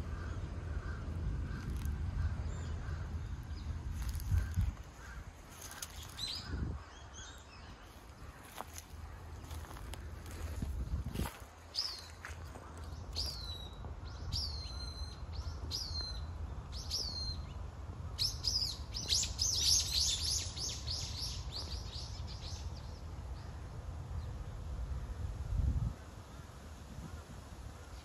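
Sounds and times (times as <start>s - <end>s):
low steady rumble: 0.0s - 18.2s.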